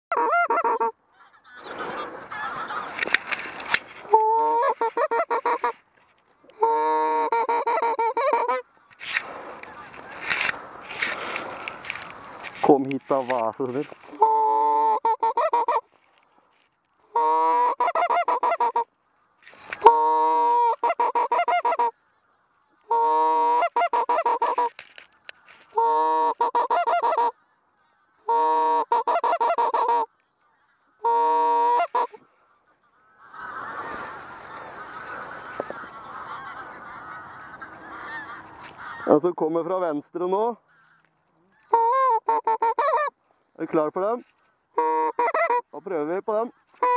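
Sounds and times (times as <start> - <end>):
geese honking: 0.1 - 16.0, 17.0 - 39.4, 40.6 - 43.2, 44.8 - 46.9
soft continuous rough sound: 1.2 - 6.6, 8.6 - 14.3, 32.0 - 39.0.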